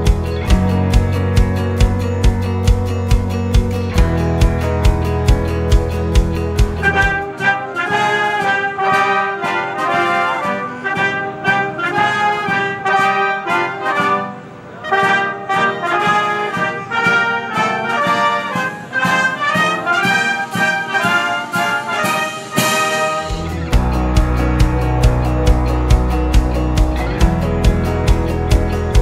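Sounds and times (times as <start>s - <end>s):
wind band playing a march: 6.8s - 26.4s.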